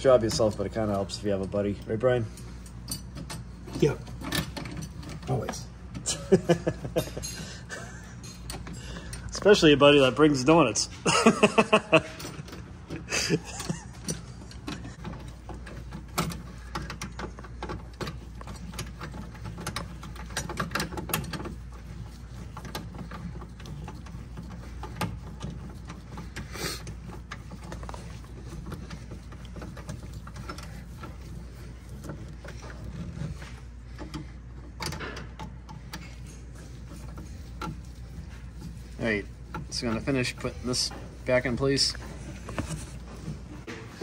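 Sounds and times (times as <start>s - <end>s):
hand tools clicking and rattling: 0.0s - 10.5s, 11.1s - 43.8s
steady low hum: 0.0s - 44.0s.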